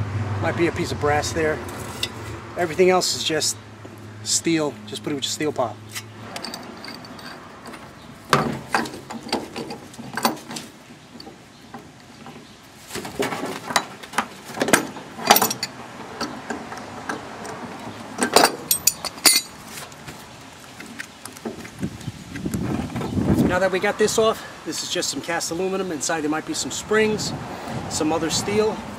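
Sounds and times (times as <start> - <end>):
metal tools clicking and clanking: 5.0 - 12.5, 13.1 - 19.6.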